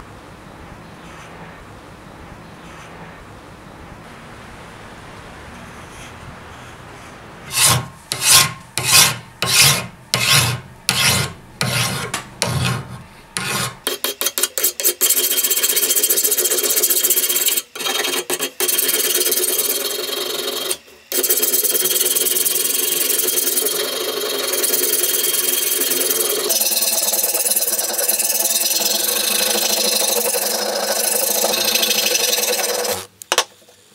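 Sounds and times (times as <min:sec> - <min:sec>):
file scraping steel blade: 0:07.5 - 0:33.1.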